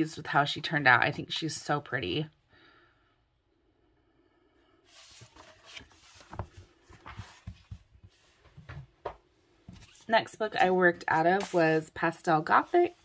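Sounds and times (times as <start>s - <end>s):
pages rustling: 4.9s - 8.9s, 9.6s - 11.8s.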